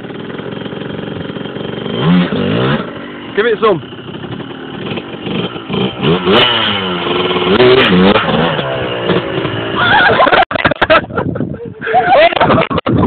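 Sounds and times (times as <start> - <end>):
motorcycle engine revving: 0.0 - 10.4.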